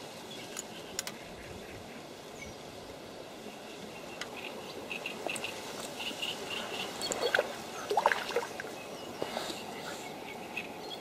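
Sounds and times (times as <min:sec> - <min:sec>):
steady low hiss: 0:00.0 - 0:11.0.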